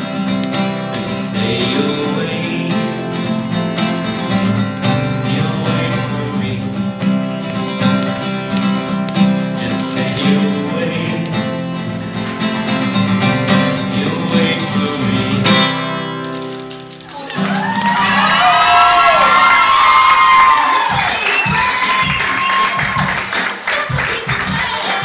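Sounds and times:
acoustic guitar playing: 0:00.0 - 0:18.4.

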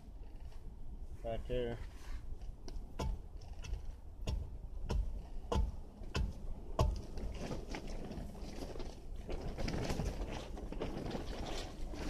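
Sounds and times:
thuds of tool tamping dirt: 0:02.6 - 0:08.1.

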